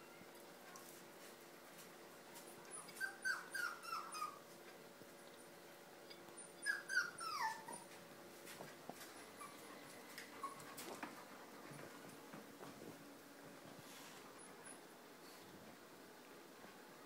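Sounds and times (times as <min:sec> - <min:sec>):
faint steady hum: 0:00.0 - 0:17.0
young pet crying: 0:02.7 - 0:04.4, 0:06.4 - 0:07.9.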